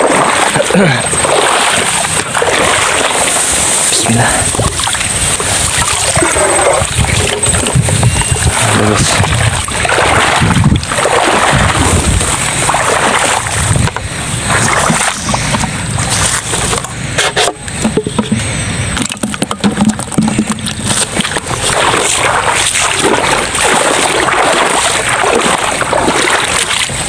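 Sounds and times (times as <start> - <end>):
water splashing and sloshing: 0.0 - 27.0
trap clattering over bucket: 12.7 - 22.2
knocks and scraping of handling: 13.8 - 22.2.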